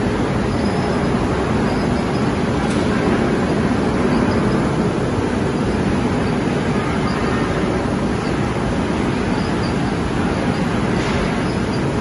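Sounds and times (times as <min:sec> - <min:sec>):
casting machine running: 0:00.0 - 0:12.0.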